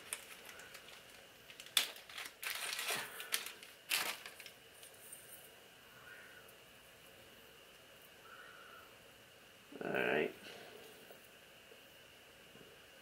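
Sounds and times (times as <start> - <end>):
packaging rustling: 0.0 - 5.2.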